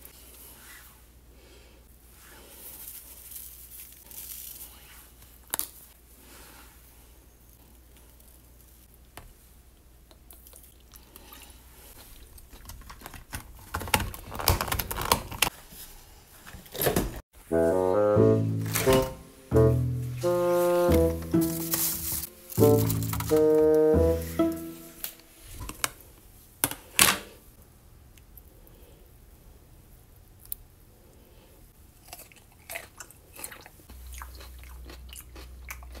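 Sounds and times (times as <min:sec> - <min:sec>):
chewing crisp pickle crunches: 0:32.0 - 0:36.0.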